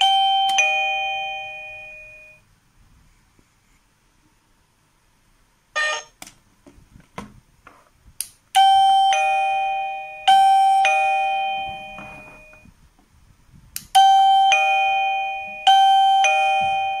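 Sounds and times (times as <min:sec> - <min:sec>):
doorbell ding-dong chime: 0:00.0 - 0:02.4, 0:08.6 - 0:12.7, 0:14.0 - 0:17.0.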